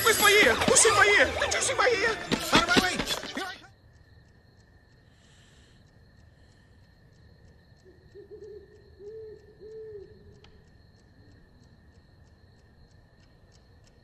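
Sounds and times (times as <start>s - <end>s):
alarm clock ticking: 0.0s - 14.0s
owl hooting: 7.9s - 10.4s.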